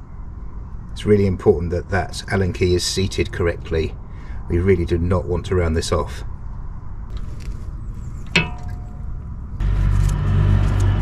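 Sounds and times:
steady low hum: 0.0 - 11.0
metallic tool clink: 8.3 - 9.2.

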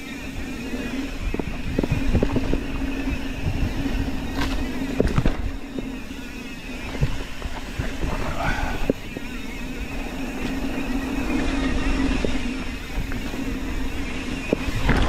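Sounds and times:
bike knocks and rattles: 0.0 - 15.0
bike tyres rolling over dirt: 0.0 - 15.0
steady hum: 0.0 - 15.0.

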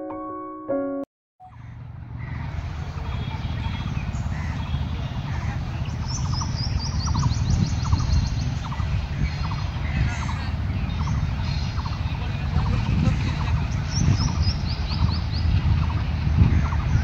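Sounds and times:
piano music: 0.0 - 1.1
birds chirping: 1.4 - 17.0.

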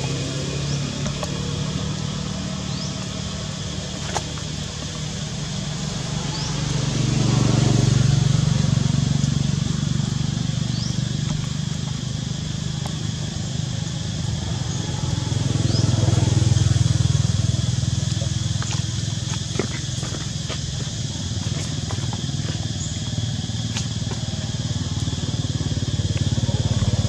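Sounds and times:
vehicle engine passing: 0.0 - 27.0
faint high rising chirp: 10.5 - 11.6.

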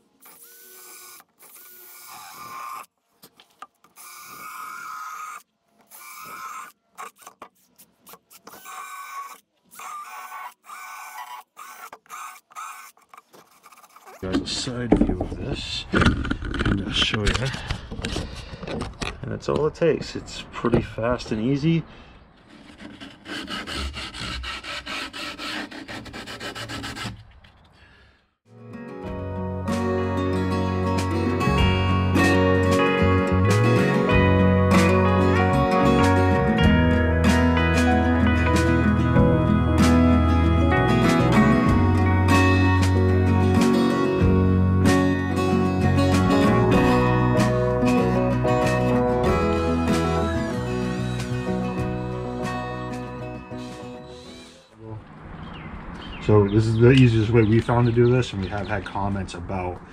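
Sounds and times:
drill grinding foam: 0.0 - 2.9, 3.9 - 14.2
sandpaper rubbing back and forth: 6.0 - 14.2, 22.4 - 27.6.

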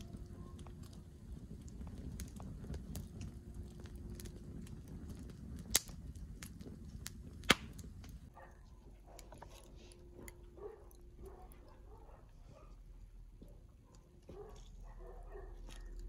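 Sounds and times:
wood fire crackling: 0.0 - 16.0
loud sharp fire pops: 1.5 - 8.3.

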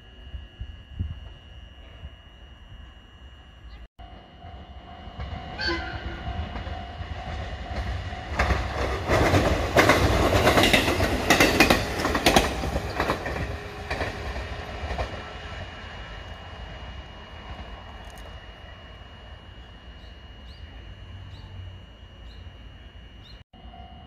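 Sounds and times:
electric train passing: 0.0 - 24.0
wheels clicking over rail joints: 6.3 - 15.3.

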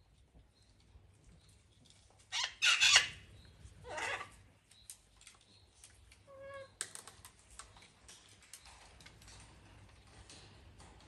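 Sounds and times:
parrots clicking and tapping: 6.8 - 11.0.

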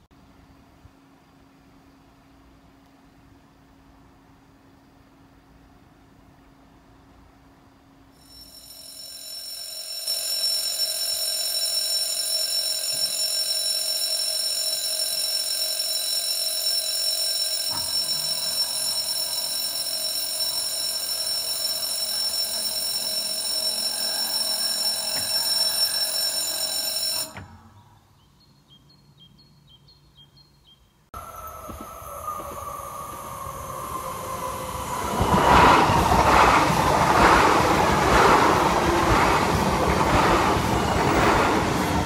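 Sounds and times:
level crossing bell ringing: 8.2 - 27.7.

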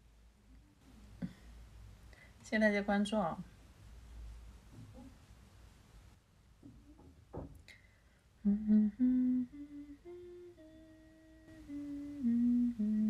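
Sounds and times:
woman humming: 8.4 - 13.0.

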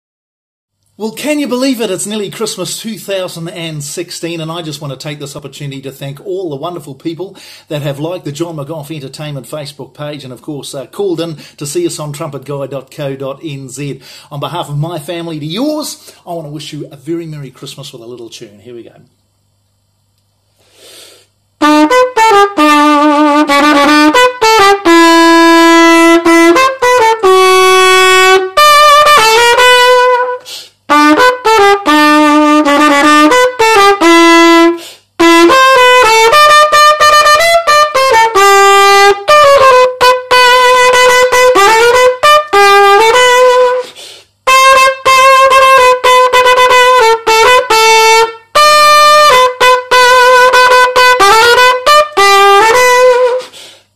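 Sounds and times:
solo trumpet playing a tune: 21.6 - 53.6.

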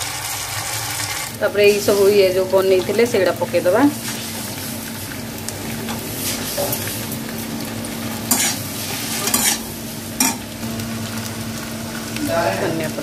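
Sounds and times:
potatoes sizzling in oil: 0.0 - 13.0
metal spatula scraping pan: 8.3 - 10.4.

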